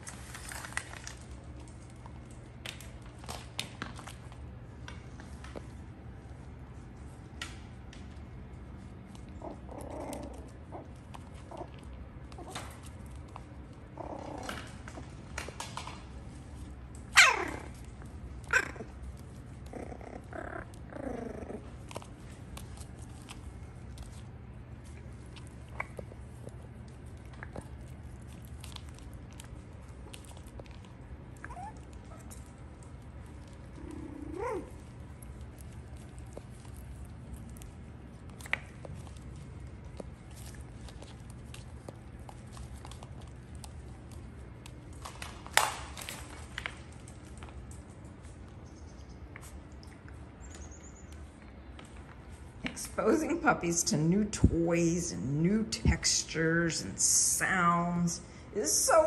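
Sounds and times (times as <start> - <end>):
puppies play growling: 0.0 - 53.9
steady low hum: 0.0 - 59.0
puppies squeaking and whimpering: 31.4 - 32.4.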